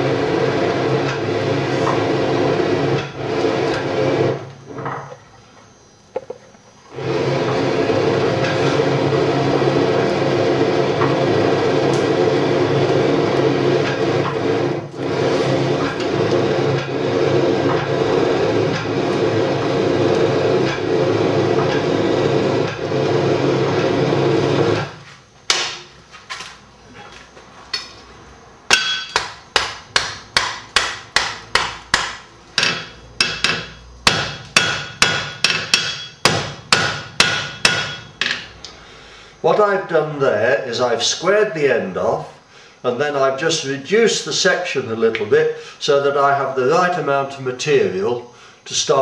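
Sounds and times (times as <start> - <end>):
forge blower running: 0.0 - 25.9, 28.5 - 41.9
hammer ringing on anvil: 28.7 - 38.4.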